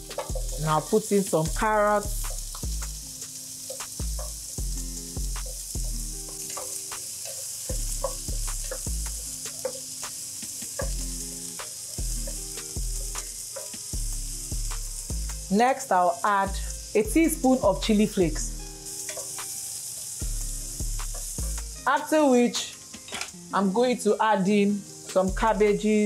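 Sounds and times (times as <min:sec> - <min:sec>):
background music with bass line: 0:00.0 - 0:00.9, 0:01.5 - 0:03.3, 0:03.9 - 0:06.5, 0:07.7 - 0:09.6, 0:10.6 - 0:13.4, 0:14.0 - 0:15.5, 0:20.2 - 0:21.9
vegetables sizzling in oil: 0:00.0 - 0:26.0.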